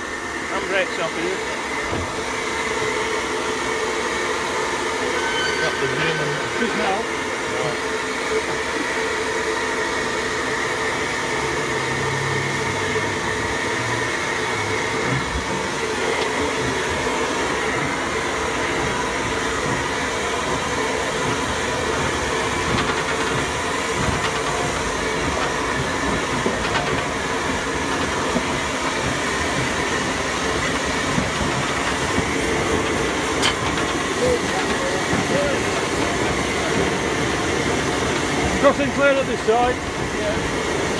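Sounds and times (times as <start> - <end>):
steam locomotive hissing: 0.0 - 40.9
running gear rumbling: 11.9 - 40.9.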